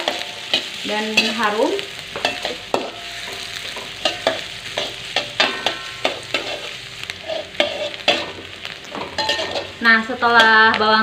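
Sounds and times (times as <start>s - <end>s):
onion sizzling in a wok: 0.0s - 11.0s
metal ladle scraping and clinking: 2.2s - 9.8s.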